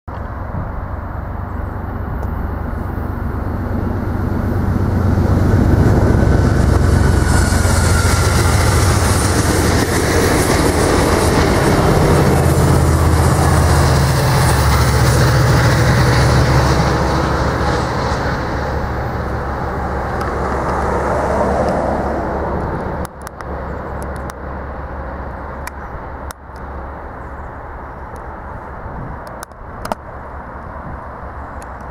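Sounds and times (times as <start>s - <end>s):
passenger train passing: 0.1s - 31.9s
rail noise: 0.1s - 31.9s
train clicks: 5.4s - 21.9s, 29.1s - 30.7s.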